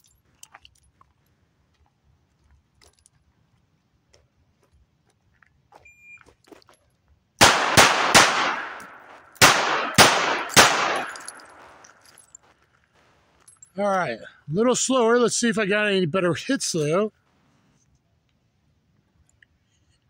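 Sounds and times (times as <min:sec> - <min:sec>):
revolver gunshots: 0:07.4 - 0:12.0.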